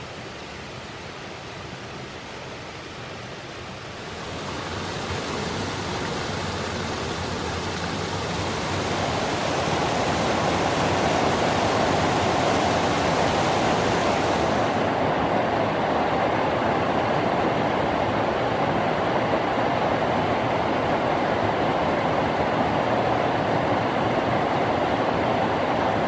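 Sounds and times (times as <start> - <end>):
waterfall rushing over rocks: 0.0 - 17.3.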